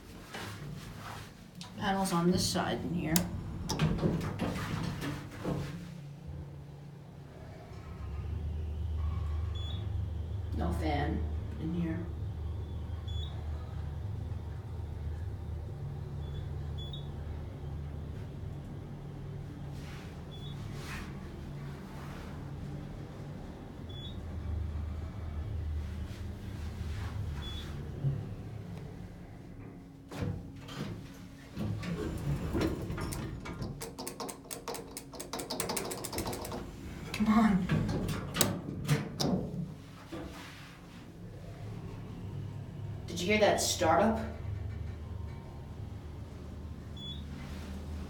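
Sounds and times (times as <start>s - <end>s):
elevator hum and rumble: 0.0s - 48.0s
elevator clunk: 3.0s - 5.1s, 30.2s - 39.8s
quick clicks: 33.8s - 36.7s.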